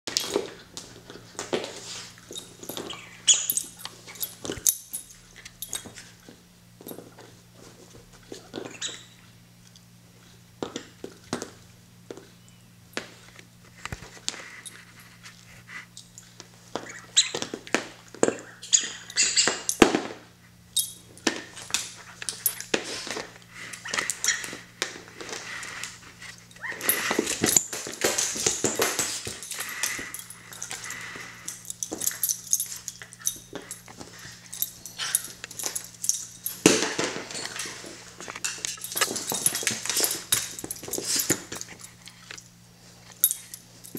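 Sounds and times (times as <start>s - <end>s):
dog paws scrabbling: 20.8s - 43.9s.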